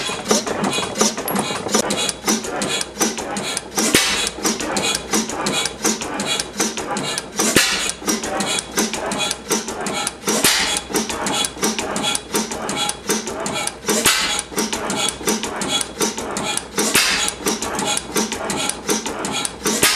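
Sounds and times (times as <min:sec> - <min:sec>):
stationary gas engine clattering: 0:00.0 - 0:19.9.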